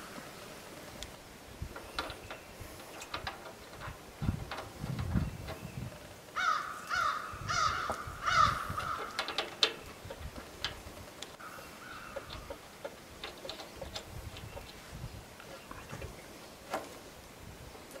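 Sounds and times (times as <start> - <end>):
bird calling: 5.1 - 10.2, 11.3 - 17.0.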